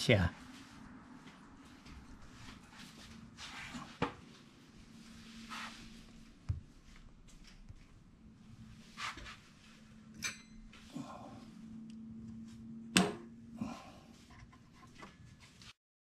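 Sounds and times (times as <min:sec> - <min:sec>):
steady low hum: 0:00.0 - 0:15.5.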